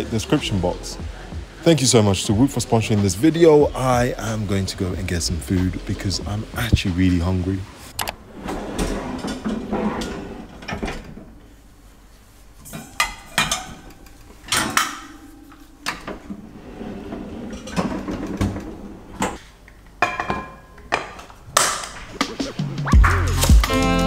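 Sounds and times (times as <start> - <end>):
cabinet opening: 8.0 - 11.4, 15.9 - 19.4
metal baskets rattling and clunking: 12.6 - 19.4
pans clinking: 12.6 - 19.4, 20.0 - 21.9.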